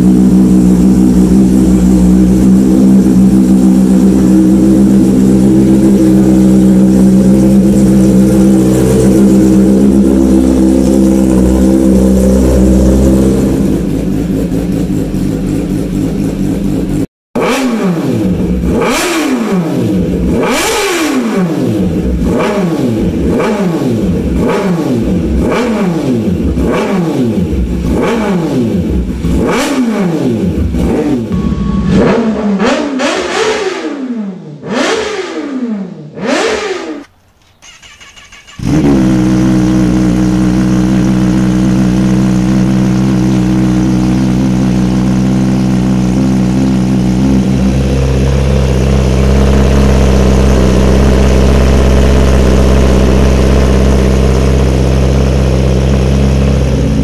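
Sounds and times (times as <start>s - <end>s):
motorcycle engine idling: 0.0s - 17.1s, 37.3s - 57.0s
motorcycle engine revving: 0.0s - 57.0s.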